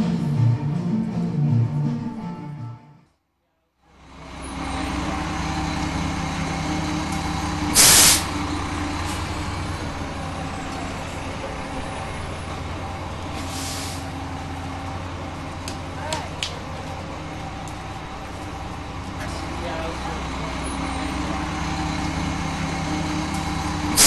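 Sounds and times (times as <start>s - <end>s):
bus engine rumbling: 0.0s - 2.8s, 3.8s - 24.0s
air-brake hiss: 7.6s - 8.4s, 13.4s - 14.2s, 23.8s - 24.0s.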